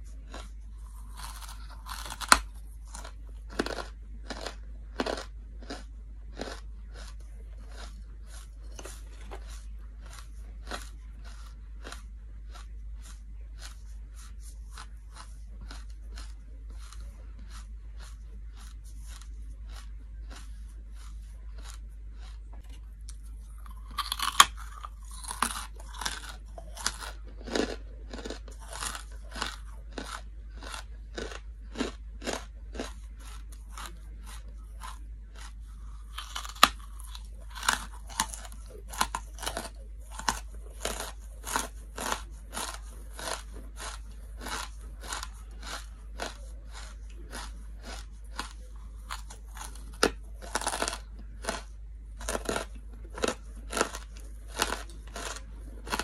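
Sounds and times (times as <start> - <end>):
chewing hard charcoal crunches: 0.0 - 56.0.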